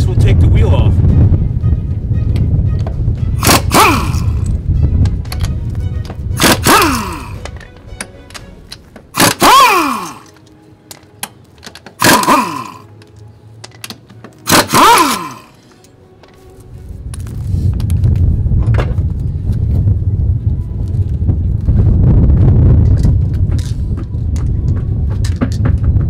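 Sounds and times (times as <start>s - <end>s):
air impact wrench bursts: 3.4s - 4.5s, 6.4s - 7.4s, 9.1s - 10.4s, 12.0s - 12.9s, 14.4s - 15.5s.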